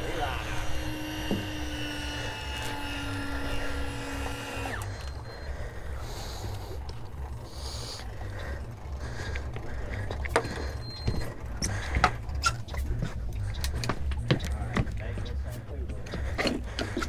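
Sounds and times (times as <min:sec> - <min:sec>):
fishing reel motor whining: 0:00.0 - 0:14.2.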